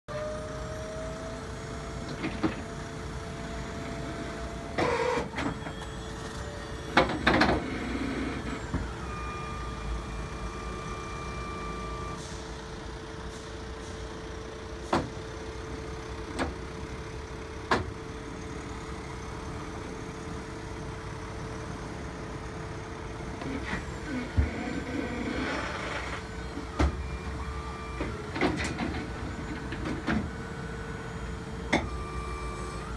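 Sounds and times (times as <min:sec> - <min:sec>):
truck engine idling: 0:00.1 - 0:32.9
hydraulic drive whining: 0:03.8 - 0:09.4, 0:23.3 - 0:30.3.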